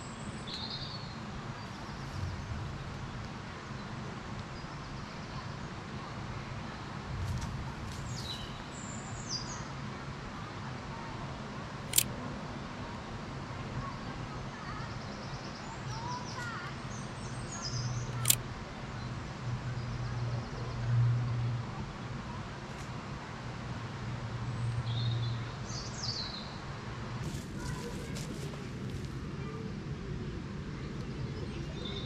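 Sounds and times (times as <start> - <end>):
steady low hum: 1.3 - 4.0
camera shutter clicks: 11.9 - 12.1, 18.1 - 18.4.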